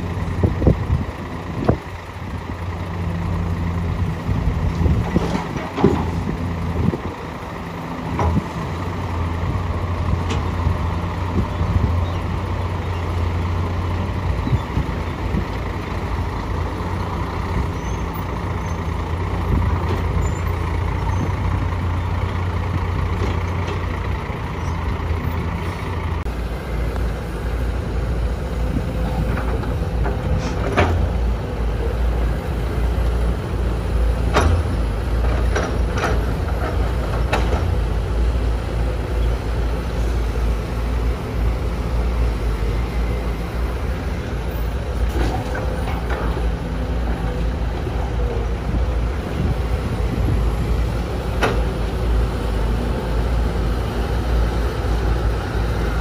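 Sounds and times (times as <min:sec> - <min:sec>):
diesel engines running: 0:00.0 - 0:56.0
excavator bucket clanks and thuds: 0:04.8 - 0:07.0, 0:08.1 - 0:08.6, 0:29.2 - 0:31.2, 0:34.2 - 0:37.8.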